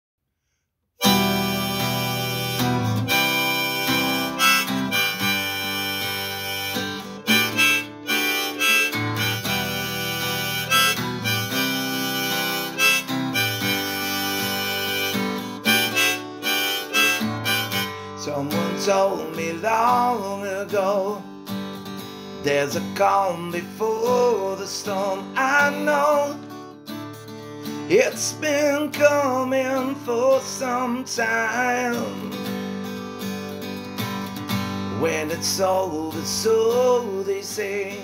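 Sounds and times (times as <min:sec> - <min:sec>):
harmonica melody: 0:01.0 - 0:20.3, 0:24.0 - 0:28.2
strummed acoustic guitar: 0:01.0 - 0:38.0.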